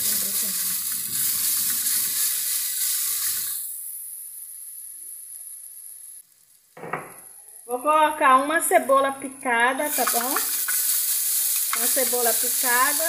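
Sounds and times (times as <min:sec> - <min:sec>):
garlic sizzling in hot oil: 0:00.0 - 0:06.6, 0:09.8 - 0:13.0.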